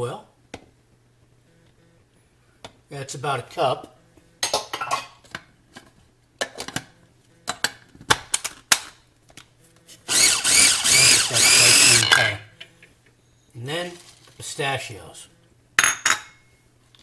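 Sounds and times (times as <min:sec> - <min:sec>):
food processor motor blending: 0:10.1 - 0:12.0.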